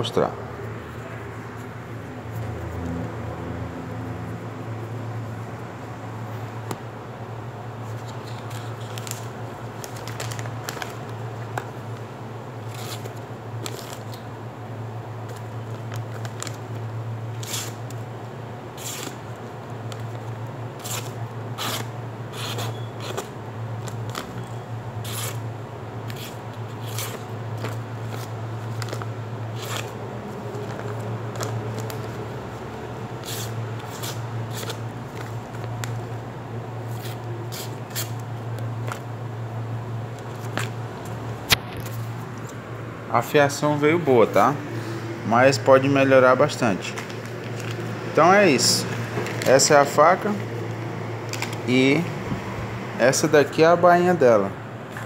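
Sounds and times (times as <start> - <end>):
steady low hum: 0.0 - 55.0
paper rustling: 7.8 - 11.9, 26.1 - 32.6
knife cutting paper: 17.4 - 18.0, 18.8 - 19.2, 20.8 - 24.4, 25.0 - 25.4, 26.1 - 32.2, 33.2 - 36.0, 36.9 - 38.2.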